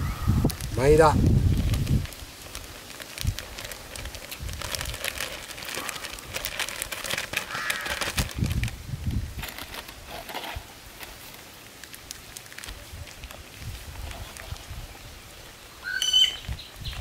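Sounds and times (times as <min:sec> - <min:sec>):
plastic bag crinkling: 0:00.5 - 0:15.1
crows cawing: 0:07.5 - 0:08.1.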